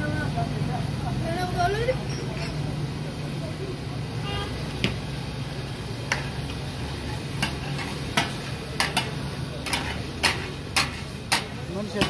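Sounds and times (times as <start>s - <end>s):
oil sizzling: 0.0s - 12.0s
metal spatulas clacking on griddle: 6.1s - 6.5s, 7.1s - 12.0s.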